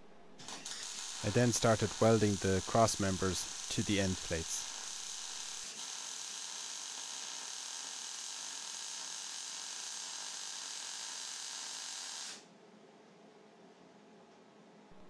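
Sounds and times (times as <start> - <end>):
welder hissing: 0.5 - 6.6.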